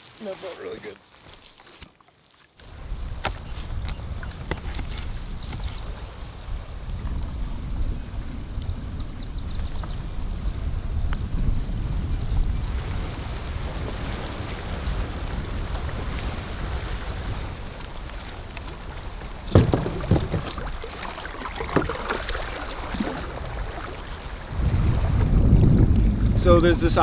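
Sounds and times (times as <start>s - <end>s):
wind: 0.0s - 27.0s
knocks and clunks of gear in canoe: 0.2s - 8.0s, 13.7s - 26.1s
water lapping against rocks: 12.6s - 26.2s.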